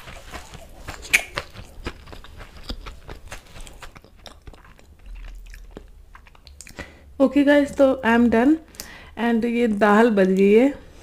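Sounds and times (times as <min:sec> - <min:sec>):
lip smacks: 0:00.0 - 0:06.9
chewing with wet clicks: 0:00.0 - 0:07.0.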